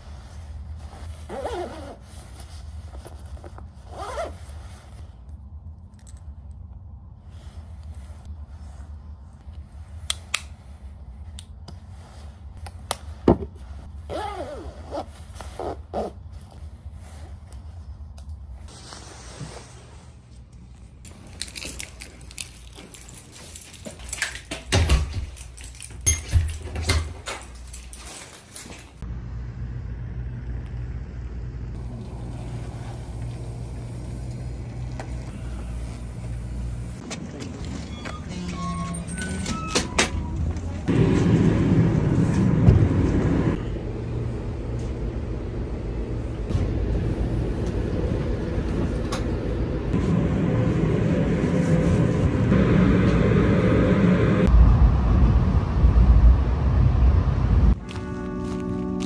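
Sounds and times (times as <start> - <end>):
jacket fabric rustling on microphone: 0.0 - 5.8, 7.0 - 24.1
jacket zipper rasping: 1.0 - 4.6, 13.8 - 16.5.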